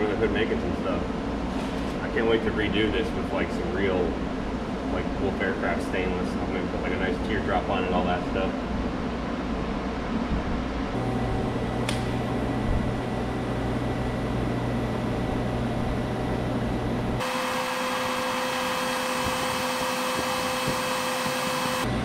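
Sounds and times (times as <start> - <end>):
welding hiss with electrical hum: 10.9 - 22.0
single click: 11.8 - 12.2.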